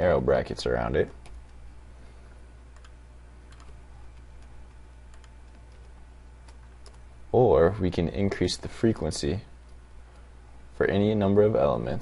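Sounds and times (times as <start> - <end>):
steady low hum: 0.0 - 12.0
computer keyboard clicks: 2.8 - 3.8, 5.1 - 7.0.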